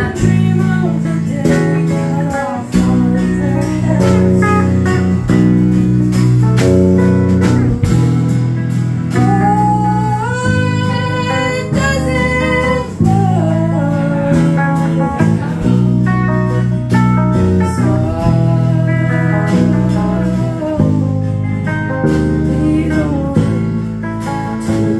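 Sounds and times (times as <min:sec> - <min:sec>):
woman singing: 0:00.0 - 0:05.6, 0:09.1 - 0:15.9, 0:17.3 - 0:24.9
acoustic guitar strummed chords: 0:00.0 - 0:24.9.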